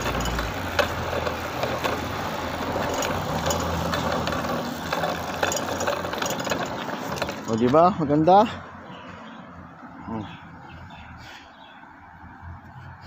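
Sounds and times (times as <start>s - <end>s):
bicycle clicks and rattles: 0.0s - 8.3s
vehicle engine humming: 0.0s - 13.0s.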